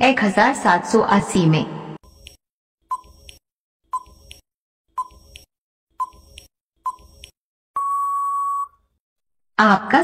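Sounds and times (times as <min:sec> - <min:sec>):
short beeping ticks: 0:02.2 - 0:04.4, 0:05.0 - 0:08.8
long steady beep: 0:07.8 - 0:08.8.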